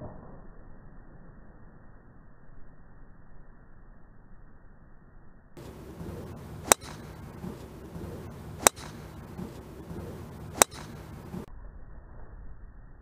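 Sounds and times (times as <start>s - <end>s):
golf driver striking ball: 5.6s - 11.5s.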